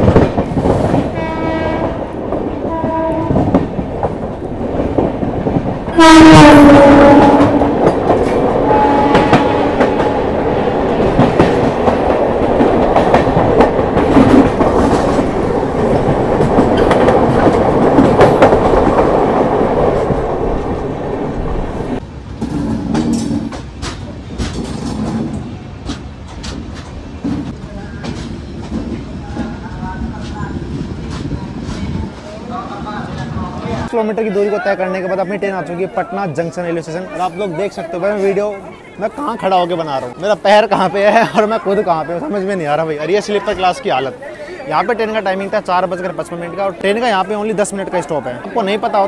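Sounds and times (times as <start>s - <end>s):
train wheels clattering on rails: 0.0s - 20.3s, 22.4s - 32.3s
train horn: 1.1s - 3.5s, 5.9s - 7.9s, 8.6s - 10.3s.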